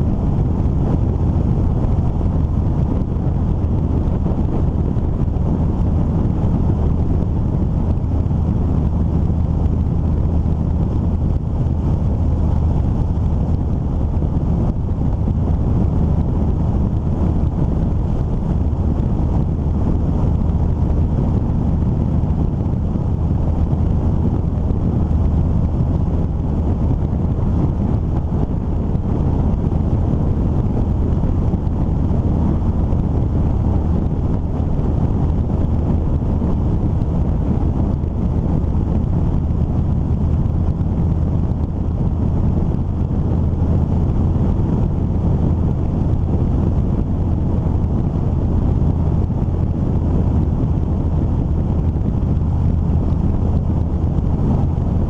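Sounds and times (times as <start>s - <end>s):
road noise: 0.0s - 55.0s
wind buffeting microphone: 0.0s - 55.0s.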